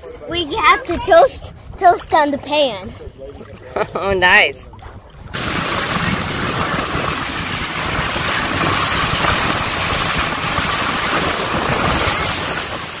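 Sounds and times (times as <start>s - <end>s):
wind noise on microphone: 0.0s - 3.6s, 4.2s - 13.0s
water rushing past hull: 0.3s - 13.0s
boat engine running: 4.7s - 13.0s.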